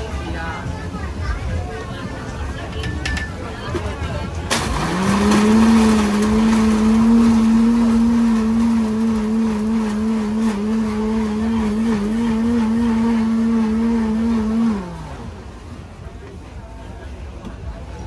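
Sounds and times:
blender motor running: 4.6s - 15.6s.

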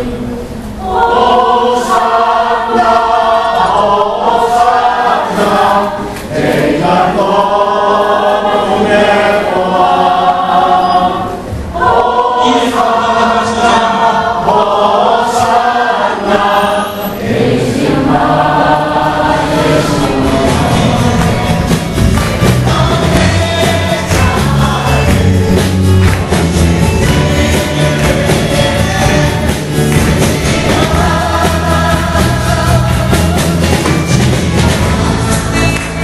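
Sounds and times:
mixed choir singing: 0.0s - 36.0s.

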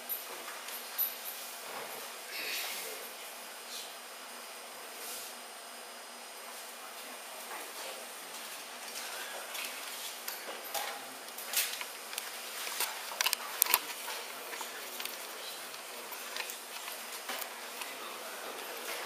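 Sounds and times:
room tone hiss: 0.0s - 19.0s.

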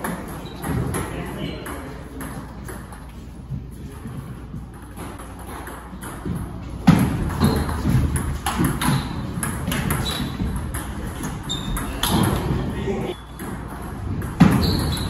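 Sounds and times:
ping pong ball hits: 5.0s - 12.6s, 13.3s - 15.0s.

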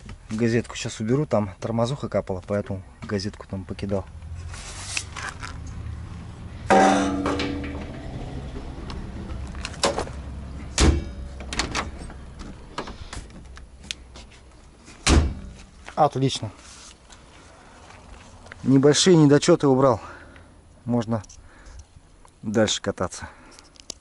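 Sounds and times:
metal jerry can clanking: 6.7s - 10.2s
heavy thumps: 6.7s - 12.9s.

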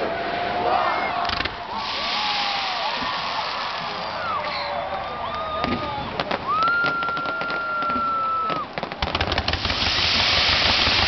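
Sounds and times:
fireworks crackle: 1.4s - 11.0s
firework whistle: 1.8s - 4.8s, 5.6s - 11.0s
firework sharp cracks: 5.6s - 11.0s.

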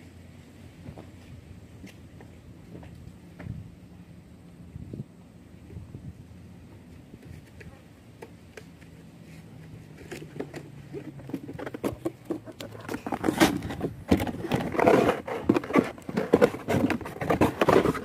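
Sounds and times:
rustling and tapping on phone: 7.2s - 18.0s.

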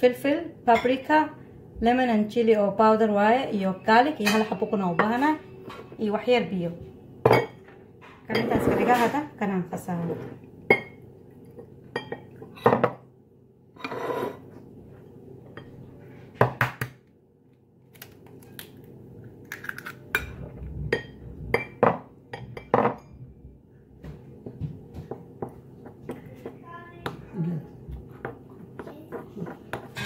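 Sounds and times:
dishes and spoon clinking: 4.1s - 6.0s, 7.2s - 9.2s, 10.3s - 13.0s, 19.6s - 23.4s, 28.2s - 30.0s
egg cracking: 17.9s - 20.2s.

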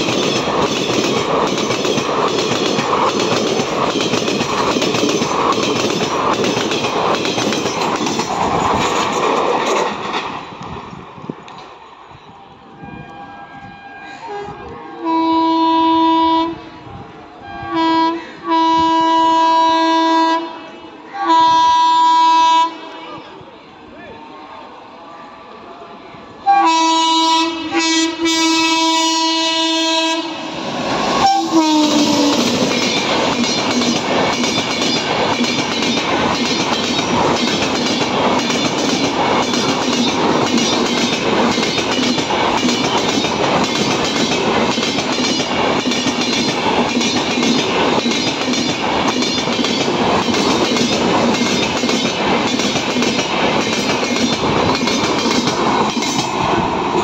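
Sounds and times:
train wheels clattering: 0.0s - 10.7s, 30.7s - 57.0s
train coaches rushing past: 0.0s - 57.0s
locomotive horn: 12.7s - 16.7s, 17.4s - 23.0s, 26.4s - 30.5s, 31.2s - 32.5s.

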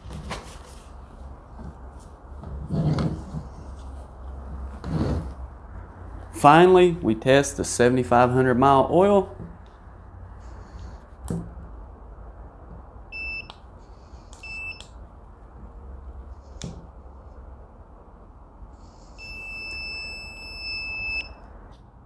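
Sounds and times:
long steady beep: 13.1s - 13.5s, 14.4s - 14.9s, 19.2s - 21.4s.

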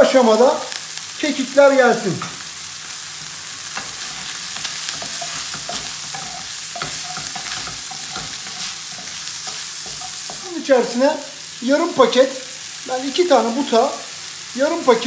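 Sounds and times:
chicken sizzling in frying pan: 0.0s - 15.0s
wooden spatula scraping pan: 3.8s - 10.5s.

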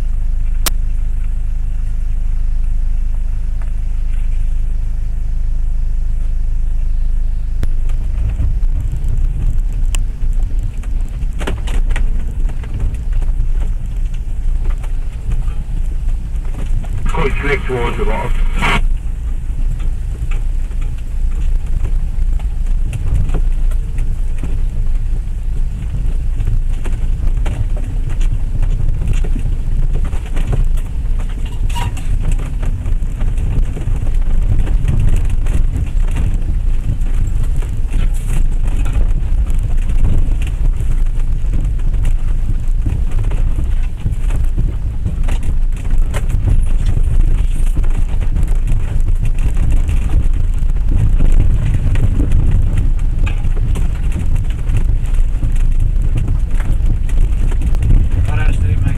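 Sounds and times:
vehicle low rumble: 0.0s - 58.9s
knocks and rattles over stones: 25.8s - 58.9s.

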